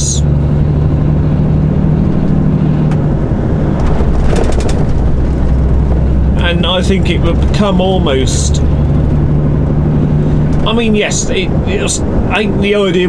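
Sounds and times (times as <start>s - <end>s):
diesel engine droning: 0.0s - 13.0s
road noise: 0.0s - 13.0s.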